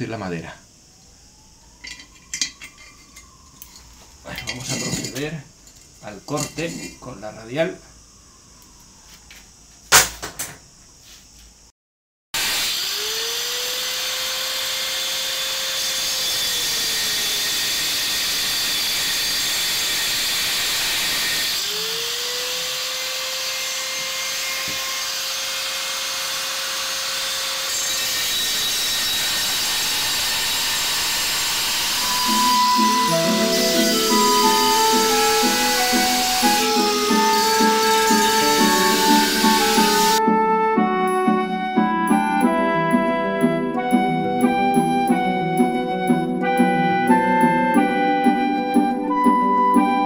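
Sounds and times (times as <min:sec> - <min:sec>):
angle grinder grinding metal: 0:12.4 - 0:40.2.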